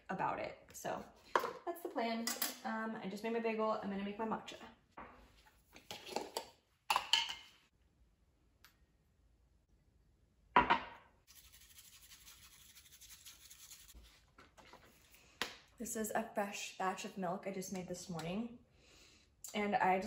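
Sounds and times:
whisk brushing against bowl: 11.3s - 14.2s.

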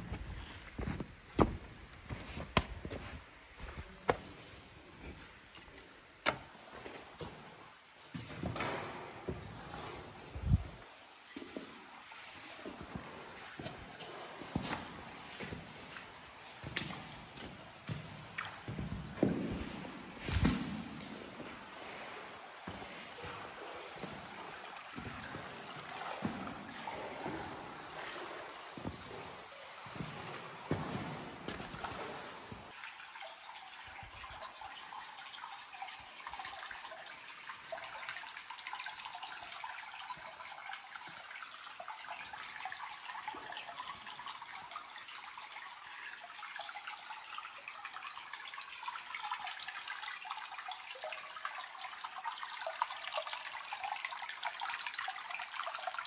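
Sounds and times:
stream running over rocks: 0.0s - 56.0s.

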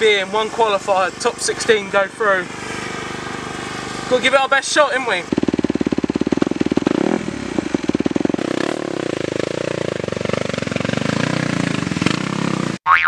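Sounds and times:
motocross bike engine revving: 0.0s - 12.8s.

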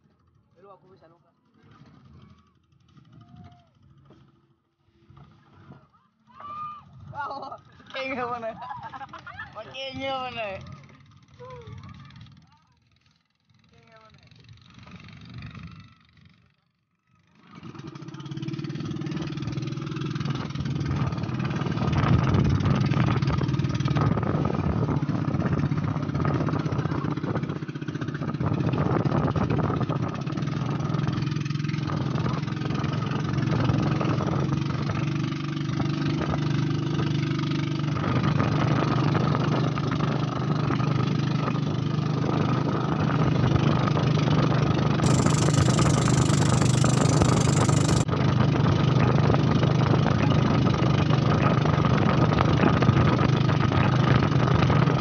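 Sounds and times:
boat engine running: 45.0s - 48.1s.

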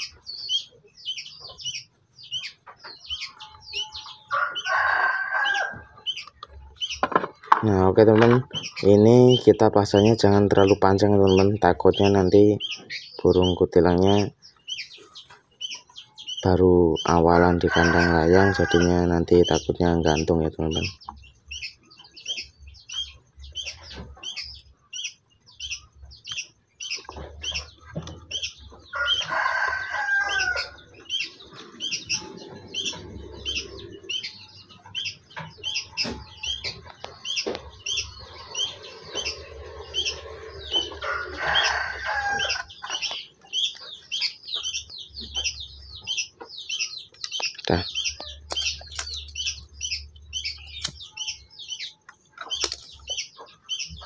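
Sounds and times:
small bird chirping: 0.0s - 54.0s
rooster crowing: 4.3s - 6.0s, 17.6s - 19.0s, 28.9s - 30.9s, 38.5s - 42.8s.

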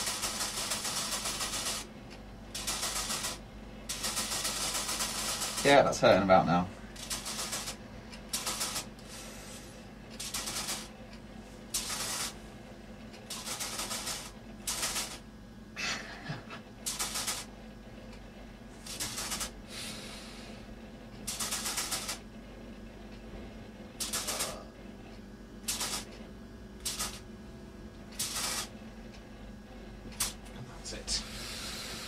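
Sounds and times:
cryospray hissing bursts: 11.8s - 12.4s, 28.2s - 28.7s, 31.2s - 32.0s.

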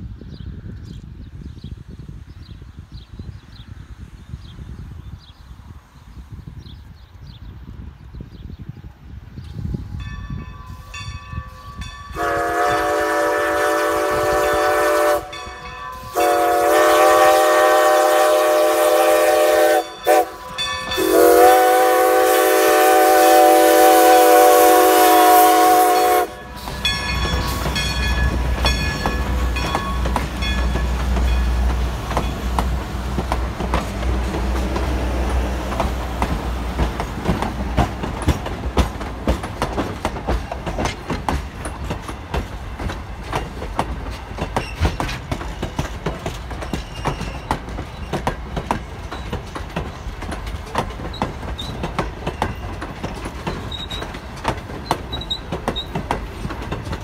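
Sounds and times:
train rolling past rumble: 0.0s - 57.0s
steam locomotive whistle: 10.8s - 28.0s
wheels clicking over rail joints: 26.0s - 57.0s.

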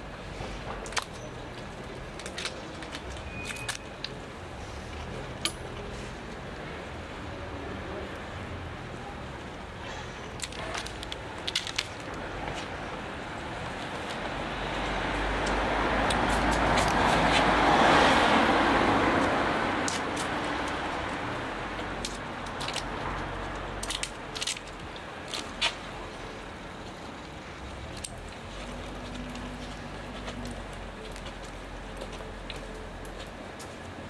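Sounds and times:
car passing by: 13.4s - 22.0s.

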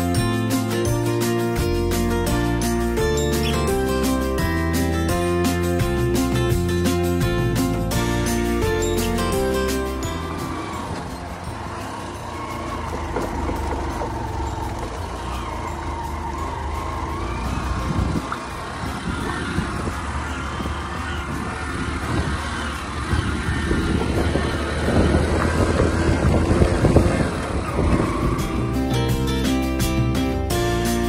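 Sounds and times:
motorcycle engine hum: 0.0s - 31.0s
wind rushing: 17.7s - 28.9s.

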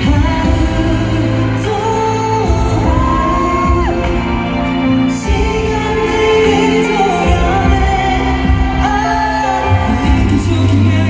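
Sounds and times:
male vocal group singing: 0.0s - 11.0s.

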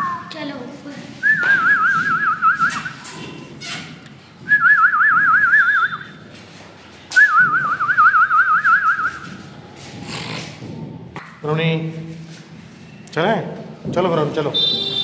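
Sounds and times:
person whistling a warble: 4.5s - 6.1s.

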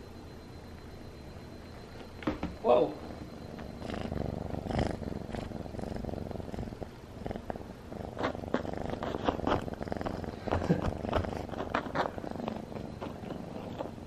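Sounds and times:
cat purring: 2.8s - 14.0s.

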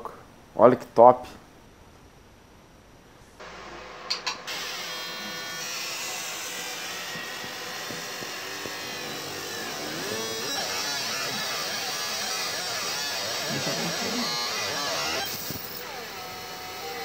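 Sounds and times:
laser engraver buzz and whine: 3.4s - 17.0s.

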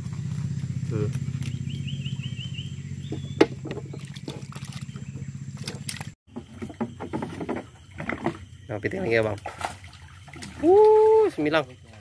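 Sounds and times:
boat engine running: 0.0s - 9.3s
high chirps: 1.0s - 5.6s.

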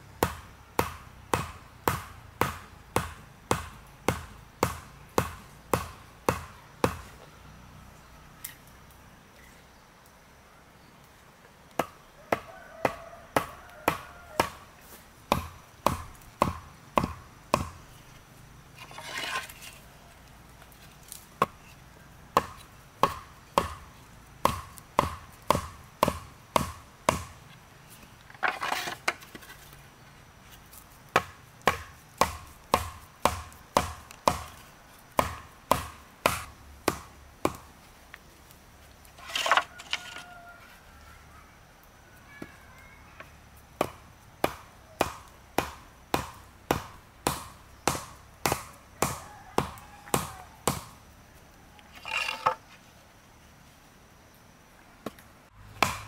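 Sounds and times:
hatchet knocking stakes into earth: 15.3s - 17.8s, 24.4s - 27.4s, 31.2s - 34.6s, 55.8s - 56.0s
scraping rustles: 17.9s - 21.9s, 27.5s - 31.0s, 38.8s - 40.9s, 51.8s - 53.8s.

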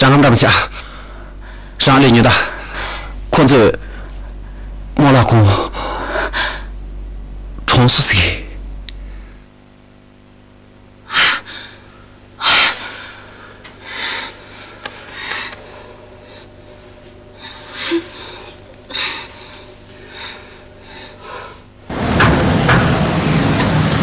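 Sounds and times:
person sobbing: 17.4s - 19.6s.

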